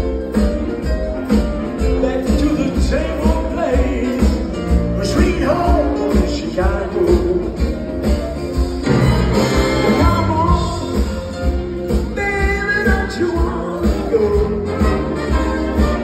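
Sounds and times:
live band playing: 0:00.0 - 0:16.0
person singing: 0:02.0 - 0:07.9, 0:09.8 - 0:11.3, 0:11.9 - 0:16.0.

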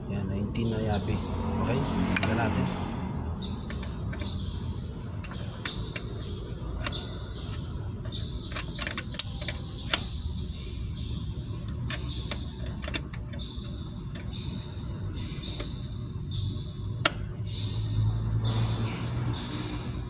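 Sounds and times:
low background rumble: 0:02.7 - 0:19.9
wrench clicking on metal nuts: 0:08.0 - 0:10.2, 0:11.7 - 0:14.3.

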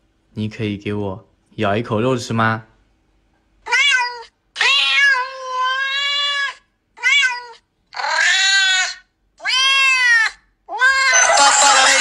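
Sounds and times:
cat meowing: 0:03.6 - 0:12.0.

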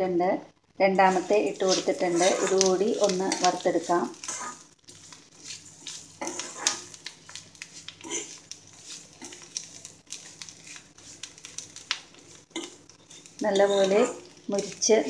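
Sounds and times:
food frying in oil: 0:00.9 - 0:15.0
metal ladle scraping a pan: 0:01.1 - 0:07.0, 0:12.2 - 0:14.8.

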